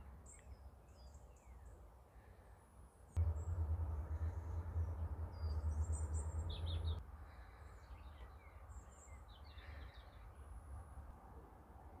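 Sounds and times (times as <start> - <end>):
low rumble: 3.2 - 7.7
small birds chirping: 3.2 - 10.5.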